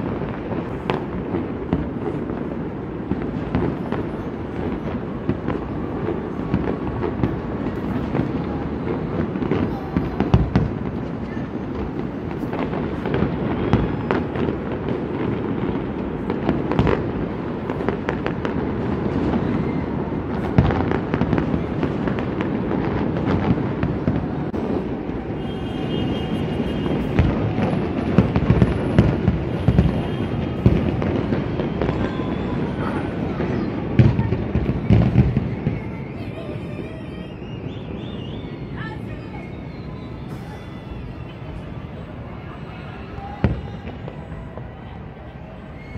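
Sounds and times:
sharp firework cracks: 0.0s - 36.5s
distant fireworks rumble: 0.0s - 45.9s.

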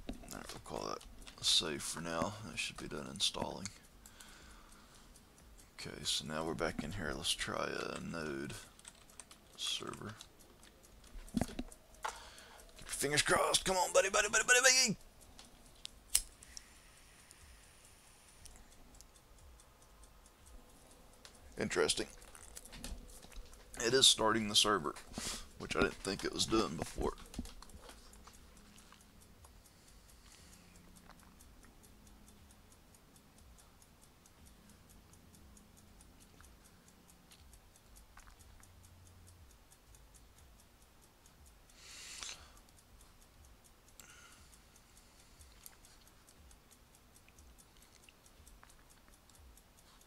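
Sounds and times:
faint ticks: 0.0s - 50.0s
sharp click: 7.8s - 17.6s, 20.3s - 50.0s.

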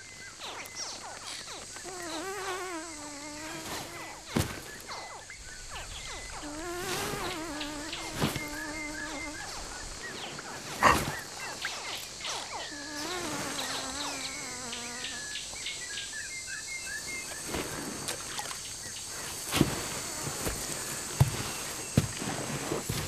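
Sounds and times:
high insect drone: 0.0s - 23.0s
wavering animal calls: 8.0s - 11.8s.

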